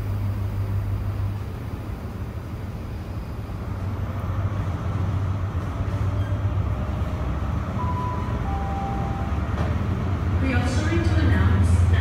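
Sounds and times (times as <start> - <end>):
diesel train engines rumbling: 0.0 - 12.0
thin high tone: 7.8 - 9.5.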